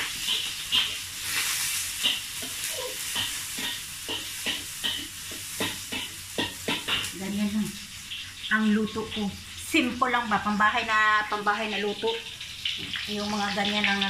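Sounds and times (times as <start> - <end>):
metal spatula scraping pan: 0.0 - 7.2
food sizzling in hot oil: 0.0 - 14.0.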